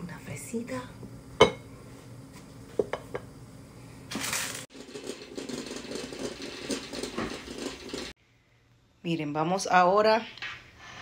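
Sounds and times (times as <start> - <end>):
dishes clinking: 1.4 - 1.7
moka pot sputtering and gurgling: 4.7 - 8.2.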